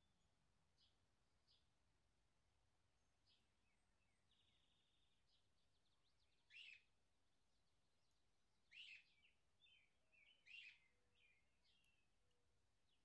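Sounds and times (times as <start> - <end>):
soft bird twitters: 6.5 - 6.8.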